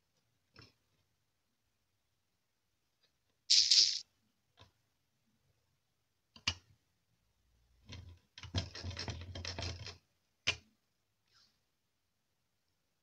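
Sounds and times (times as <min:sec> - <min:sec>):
small parts rattling and scraping: 0:03.5 - 0:04.0.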